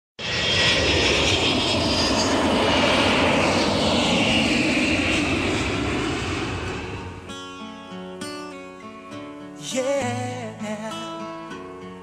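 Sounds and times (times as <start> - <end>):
jet engine whine: 0.2 - 7.6.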